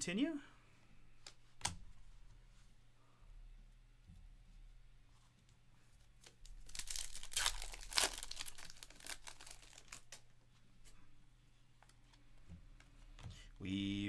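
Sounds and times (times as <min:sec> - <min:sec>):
wrapper tearing and crinkling: 0:06.2 - 0:10.2.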